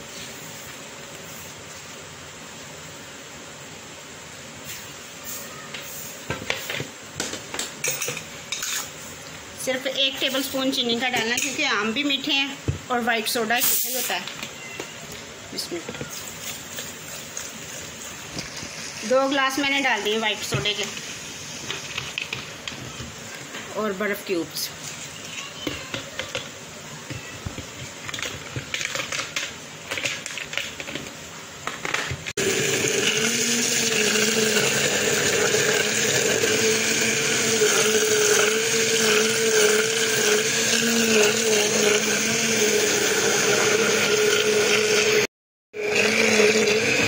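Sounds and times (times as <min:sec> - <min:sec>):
immersion blender humming: 0:32.4 - 0:47.0.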